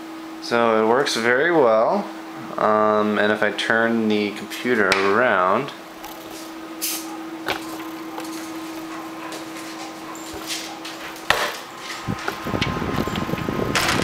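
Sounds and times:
steady hum: 2.7s - 14.0s
computer case knocks and bumps: 7.4s - 8.9s, 11.2s - 14.0s.

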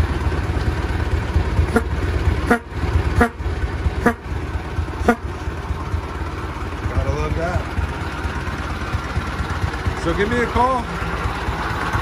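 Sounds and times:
car engine idling: 0.0s - 12.0s
squeeze-bulb horn honking: 1.7s - 4.4s, 5.0s - 5.4s.

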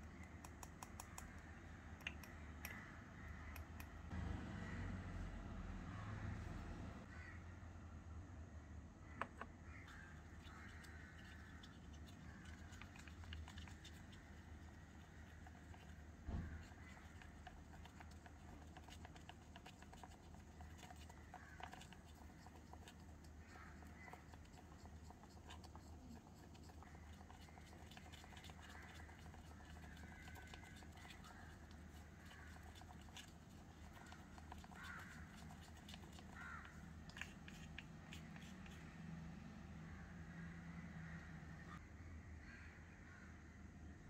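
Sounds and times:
steel bowls clicking and scraping: 9.9s - 38.9s.

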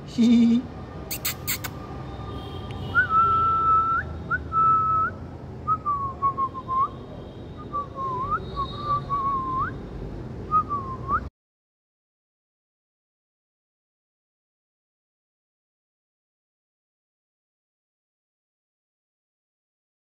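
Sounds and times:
person whistling: 3.0s - 5.1s, 7.6s - 9.7s.

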